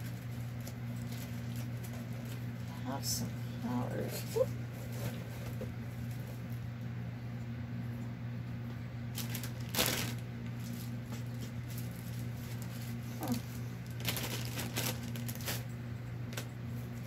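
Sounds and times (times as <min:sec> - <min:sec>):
paper rustling and crinkling: 0:00.0 - 0:02.5, 0:09.1 - 0:15.7
steady low hum: 0:00.0 - 0:17.0.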